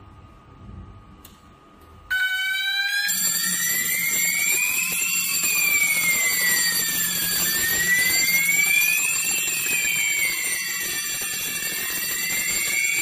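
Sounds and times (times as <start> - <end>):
steady low hum: 0.0 - 2.1
fire alarm wailing: 2.1 - 13.0.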